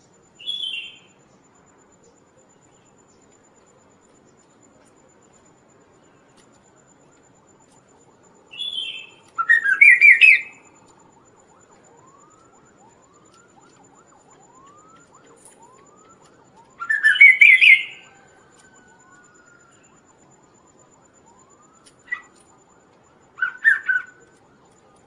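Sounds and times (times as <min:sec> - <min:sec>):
bird singing stuttering whistled phrases: 0:00.4 - 0:01.1, 0:08.5 - 0:10.6
faint rising whistle: 0:08.4 - 0:24.7.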